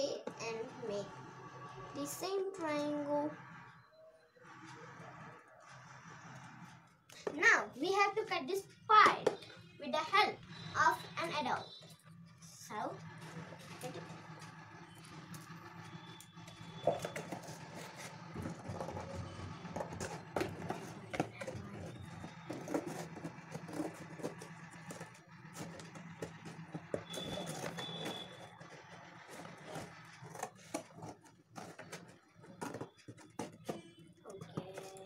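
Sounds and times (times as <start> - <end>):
scissors cutting cardboard: 19.6 - 35.0.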